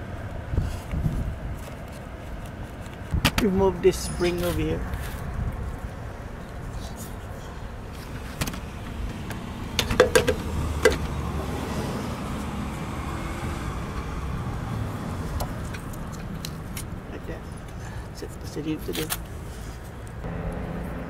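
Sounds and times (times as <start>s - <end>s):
low rumble: 20.2s - 21.0s.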